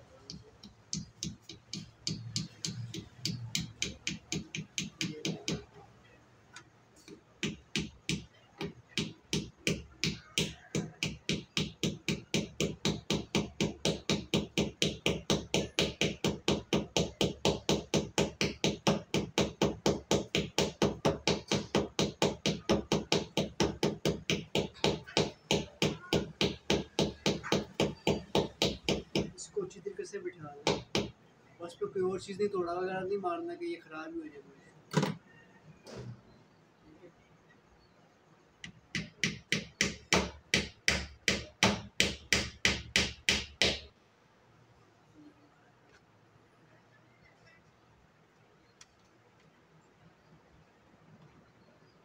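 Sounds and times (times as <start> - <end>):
hammer tapping: 0.1 - 5.7, 7.0 - 29.4, 30.6 - 31.2, 38.6 - 43.9.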